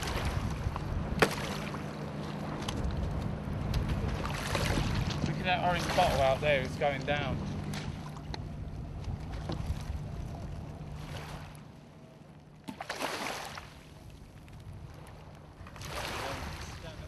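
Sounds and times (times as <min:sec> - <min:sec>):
water lapping on shingle: 0:00.0 - 0:09.8
wind on microphone: 0:00.0 - 0:11.5
steady low hum: 0:00.0 - 0:17.0.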